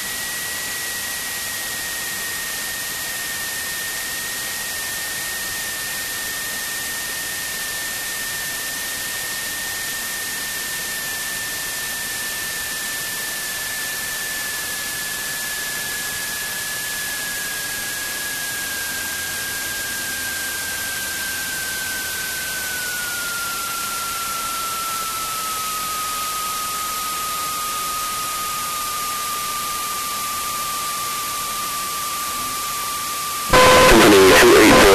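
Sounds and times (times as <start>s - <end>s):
thin whine falling in pitch: 33.5s - 34.9s.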